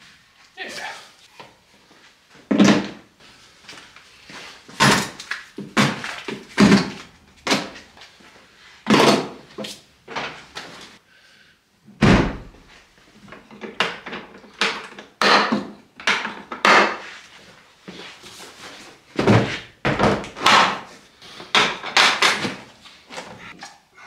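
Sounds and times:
plastic toolboxes clunking: 4.7s - 7.9s, 13.3s - 17.0s, 19.1s - 23.5s.

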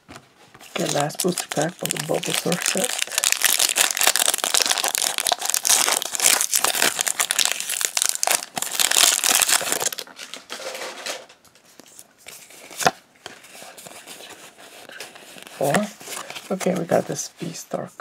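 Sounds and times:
handling cards: 0.1s - 10.6s, 11.5s - 17.6s
foil wrapper crinkling and tearing: 0.7s - 10.6s.

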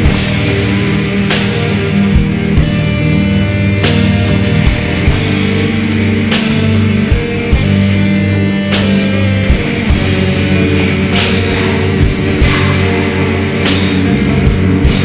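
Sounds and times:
distorted guitar chords: 0.0s - 15.0s
drums: 0.0s - 15.0s
cymbal crash: 8.8s - 15.0s.

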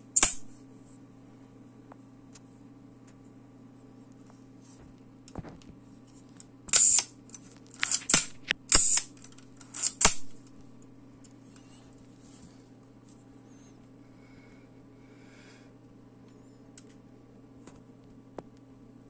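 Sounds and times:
camera shutter clicks: 6.7s - 7.1s, 7.8s - 10.3s
camera winding rasp: 7.8s - 10.2s.

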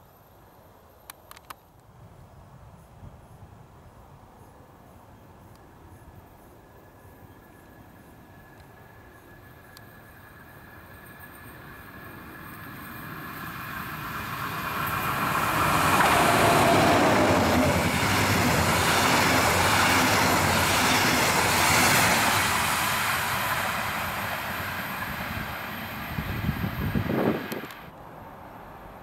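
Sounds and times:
locomotive whine: 6.9s - 29.0s.

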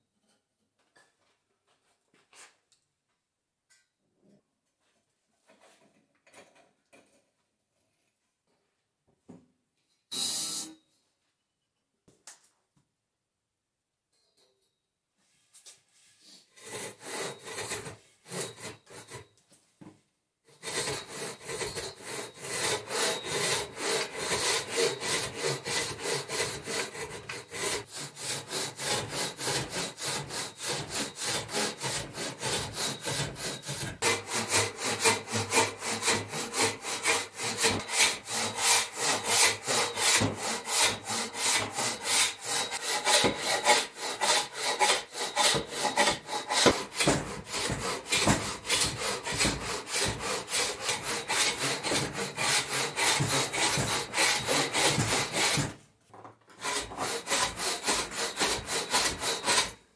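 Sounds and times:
hand saw rasping through wood: 16.3s - 19.3s, 20.5s - 55.8s, 56.5s - 59.9s.

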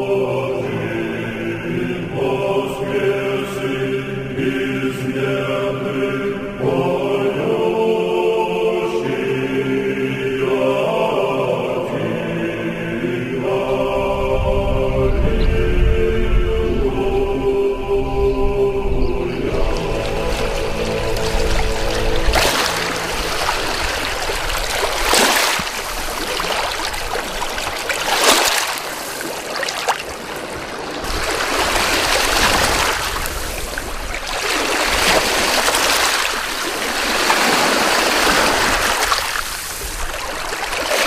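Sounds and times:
water splashing and washing: 19.4s - 41.0s.

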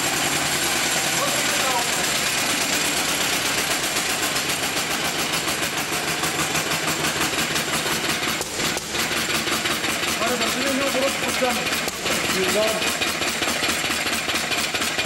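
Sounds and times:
single-cylinder engine running: 0.0s - 15.0s.

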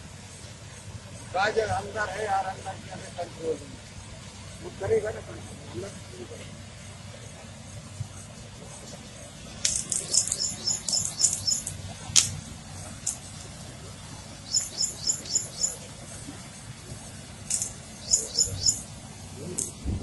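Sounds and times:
steady low rumble: 0.0s - 20.0s
small bird chirping: 9.6s - 11.8s, 14.2s - 19.7s
sharp click: 17.5s - 17.8s.

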